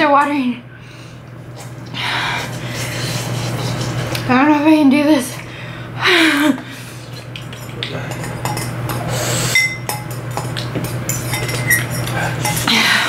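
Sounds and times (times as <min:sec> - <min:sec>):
fork scraping ceramic bowl: 0:07.1 - 0:12.7.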